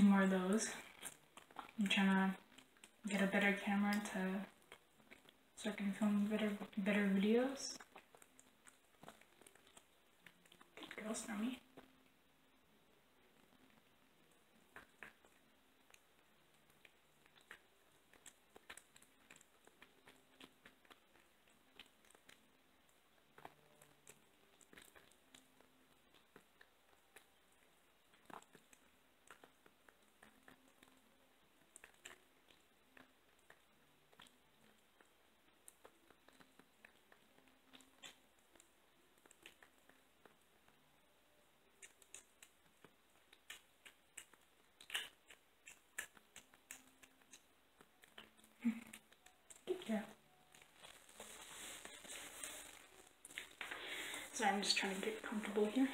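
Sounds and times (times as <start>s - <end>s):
kitten chewing wet clicks: 13.4s - 40.8s, 41.7s - 49.7s.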